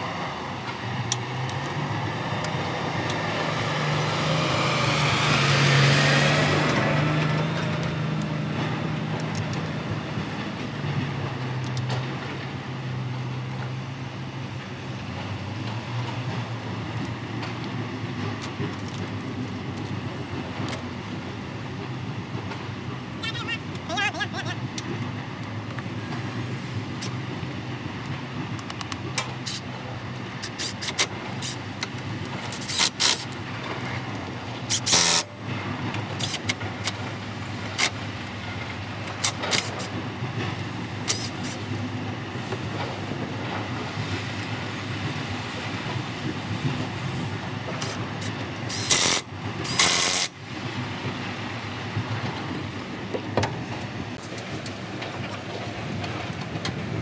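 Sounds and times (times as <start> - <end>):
engine humming: 0.0 - 57.0
loud bursts of hiss: 47.8 - 50.4.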